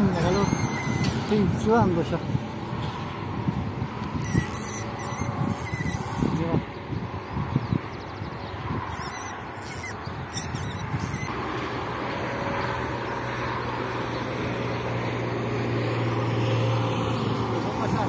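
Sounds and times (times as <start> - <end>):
sharp high clicks: 9.0 - 11.3.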